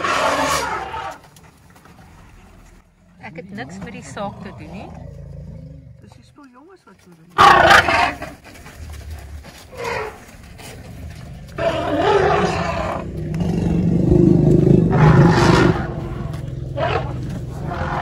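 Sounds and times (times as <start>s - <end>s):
elephants roaring: 0.0s - 1.2s, 7.4s - 8.4s, 9.7s - 18.0s.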